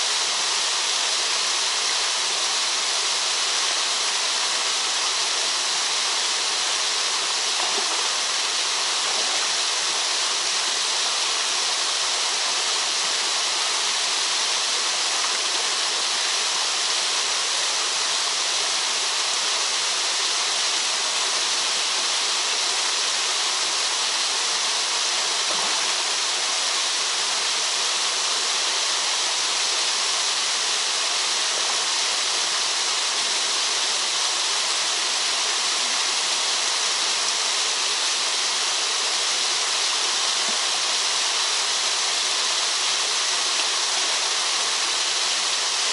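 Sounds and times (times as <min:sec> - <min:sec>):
waterfalls splashing into pool: 0:00.0 - 0:45.9.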